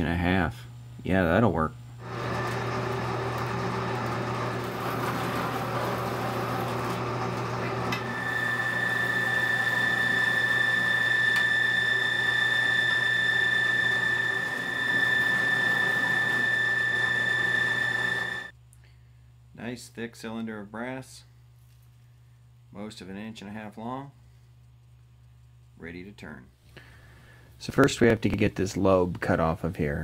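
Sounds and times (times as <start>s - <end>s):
bandsaw cutting metal: 2.0s - 18.5s.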